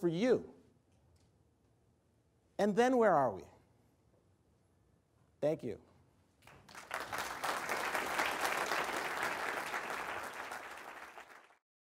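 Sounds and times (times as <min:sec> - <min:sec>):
audience applauding: 0:06.5 - 0:11.6.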